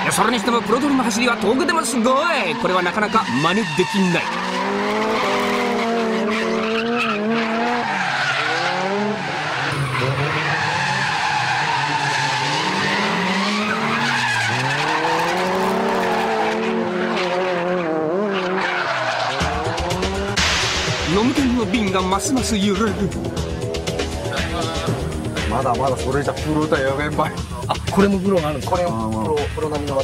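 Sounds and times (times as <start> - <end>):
car engine revving: 0.0 - 30.0
tyres squealing: 0.2 - 17.2.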